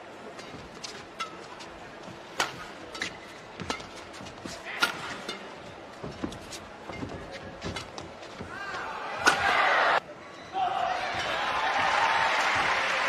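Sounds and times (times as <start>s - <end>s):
racket striking shuttlecock: 2.3s - 3.9s.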